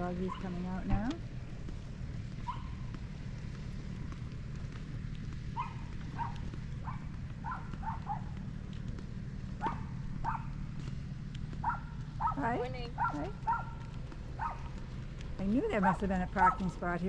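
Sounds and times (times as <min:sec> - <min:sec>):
low rumble: 0:00.0 - 0:17.0
dogs barking: 0:00.2 - 0:00.6, 0:02.4 - 0:03.0, 0:05.5 - 0:08.5, 0:09.5 - 0:10.7, 0:11.5 - 0:14.8, 0:15.6 - 0:16.9.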